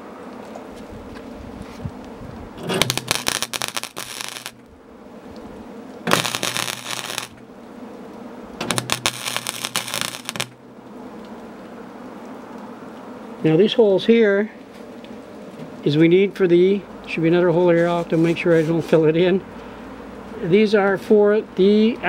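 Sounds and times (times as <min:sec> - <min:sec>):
welder crackling: 0:00.0 - 0:13.1, 0:17.2 - 0:19.0
welder low hum: 0:00.0 - 0:14.0.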